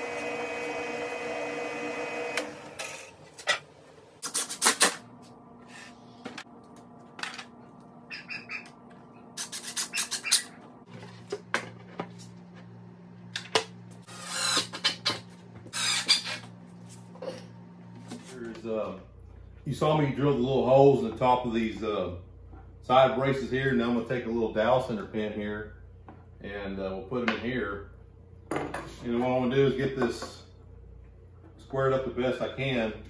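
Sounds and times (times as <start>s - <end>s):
drill press motor running: 0.0s - 3.2s.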